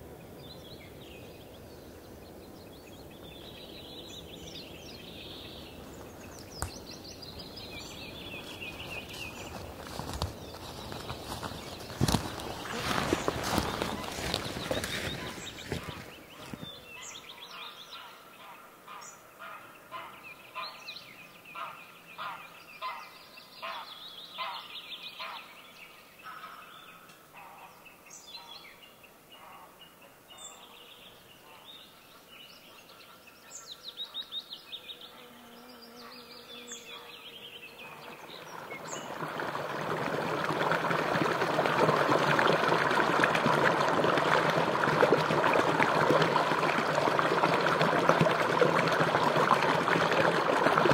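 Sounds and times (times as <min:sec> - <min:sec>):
birds calling: 0:00.6 - 0:25.6
shallow stream rushing: 0:05.6 - 0:16.9, 0:38.0 - 0:50.9.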